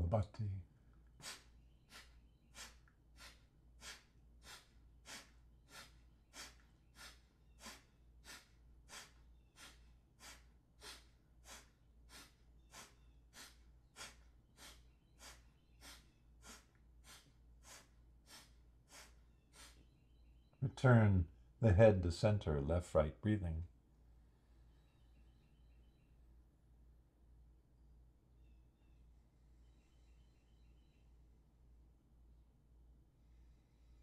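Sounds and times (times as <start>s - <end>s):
forceful nasal exhales: 1.2s - 19.9s.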